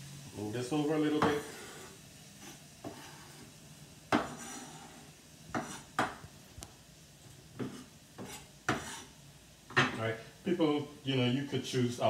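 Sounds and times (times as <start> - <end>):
knife chopping on wooden board: 4.1 - 4.5, 5.5 - 6.2, 7.6 - 9.0.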